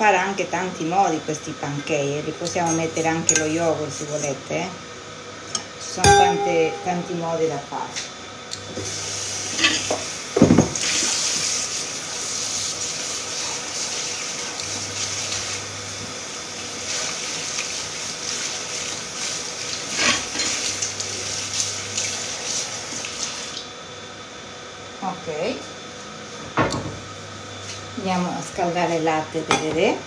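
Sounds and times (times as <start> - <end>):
pots and dishes clinking: 5.6 - 7.2, 9.5 - 10.8.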